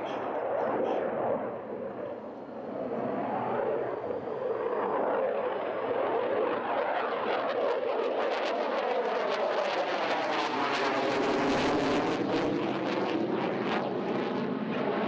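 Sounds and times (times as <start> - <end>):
faint rising whine: 0.0 - 6.7
fighter jet engine roar: 0.0 - 15.0.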